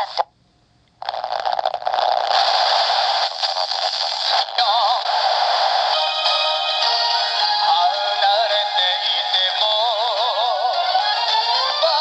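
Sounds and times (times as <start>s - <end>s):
radio static hiss: 0.0s - 0.3s, 1.0s - 7.7s
wavering music from radio: 1.0s - 12.0s
radio talk: 2.3s - 6.0s.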